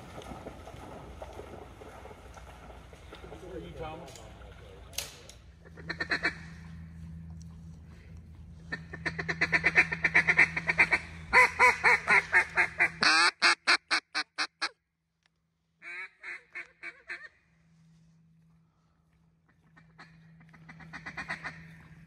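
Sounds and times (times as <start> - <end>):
duck call quacks: 5.6 - 6.8, 8.7 - 14.8, 19.8 - 21.8.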